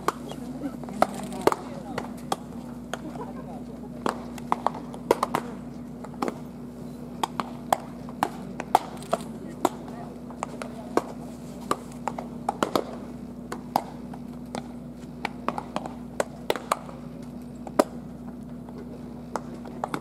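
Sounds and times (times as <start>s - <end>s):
baseballs smacking into gloves: 0.0s - 3.2s, 4.0s - 6.5s, 7.2s - 9.0s, 9.6s - 17.0s.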